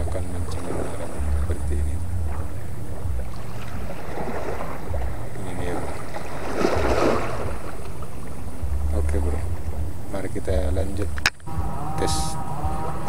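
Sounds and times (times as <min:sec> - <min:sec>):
wind buffeting microphone: 0:00.0 - 0:13.0
water washing against rocks: 0:03.3 - 0:08.2.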